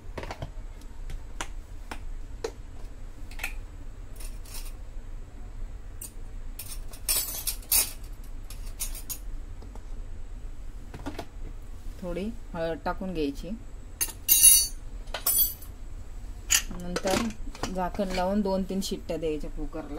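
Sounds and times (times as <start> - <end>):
metal utensils clinking: 6.0 - 9.2, 14.0 - 15.6.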